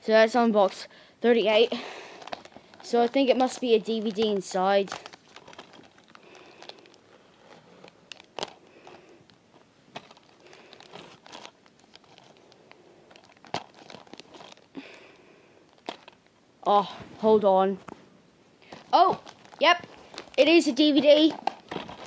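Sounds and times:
paper envelope tearing and crinkling: 2.3s - 8.6s, 19.1s - 20.5s, 21.1s - 22.0s.

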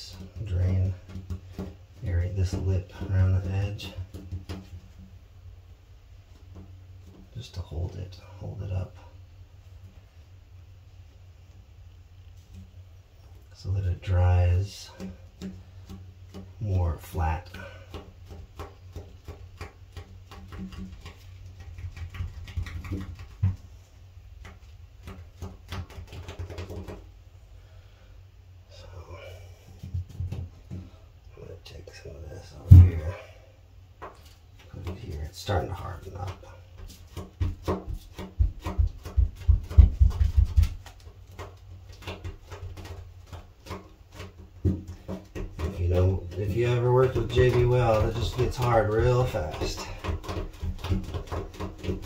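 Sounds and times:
dull knocks and light clicks: 0.0s - 5.2s, 6.2s - 8.0s, 14.7s - 27.1s, 29.8s - 31.0s, 34.0s - 52.0s
steady low hum: 0.0s - 25.7s, 27.1s - 52.0s
knock on tub: 32.6s - 33.2s, 37.2s - 40.8s.

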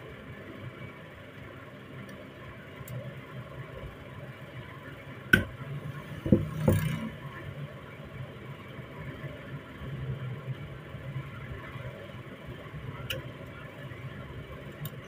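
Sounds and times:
hammer knocking on metal: 6.2s - 6.9s.

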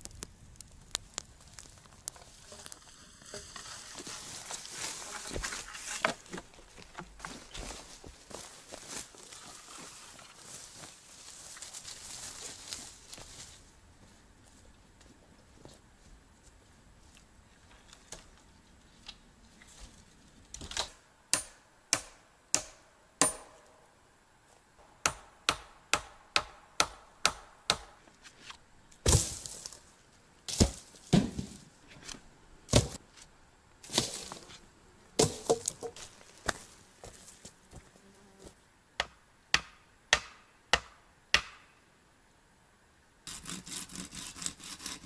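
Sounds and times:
footsteps on forest floor: 1.4s - 17.2s, 29.0s - 29.9s, 30.5s - 31.6s, 33.8s - 34.6s, 35.2s - 38.6s
sharp blows on wood: 21.3s - 23.6s, 39.0s - 41.7s.

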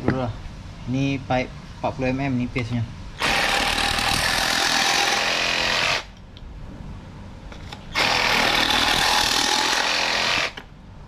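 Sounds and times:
reciprocating saw cutting plastic pipe: 7.9s - 10.7s.

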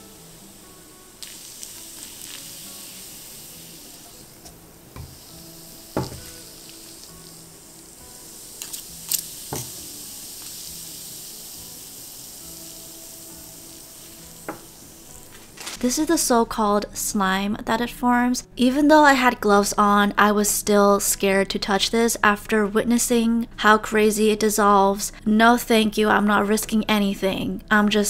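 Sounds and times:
dissolving polystyrene hissing: 0.0s - 16.4s.

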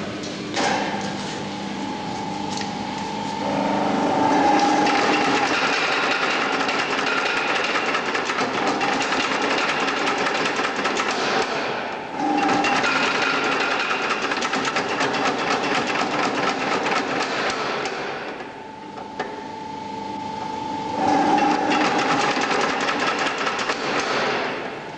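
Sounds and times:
steady machine hum: 0.0s - 24.9s
power hammer pounding: 4.6s - 18.0s, 21.4s - 24.6s.

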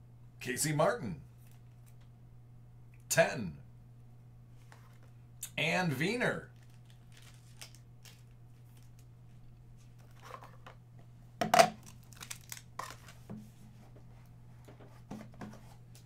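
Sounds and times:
packaging rustling and crinkling: 6.5s - 10.7s, 11.8s - 13.4s.

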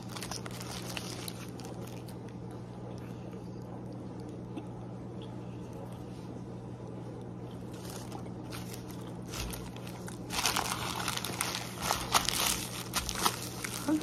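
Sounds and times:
paper wrapper crinkling: 0.0s - 2.4s, 7.6s - 14.0s
steady low hum: 0.0s - 14.0s.

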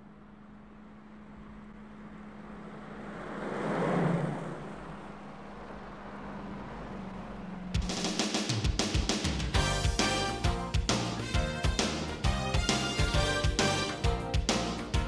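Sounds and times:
steady low hum: 0.0s - 3.4s
car passing at speed: 0.8s - 8.6s.

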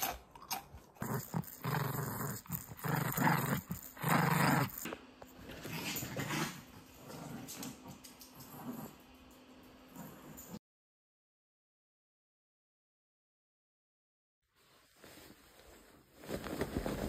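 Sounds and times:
dog growling in play: 0.0s - 4.9s, 5.5s - 9.1s, 9.9s - 10.6s.

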